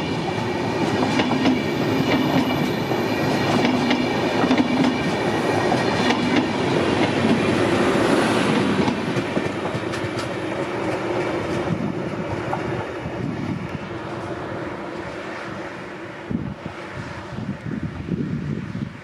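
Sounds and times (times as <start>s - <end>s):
train coaches passing at speed: 0.0s - 19.0s
wheels clattering over rail joints: 8.4s - 12.9s.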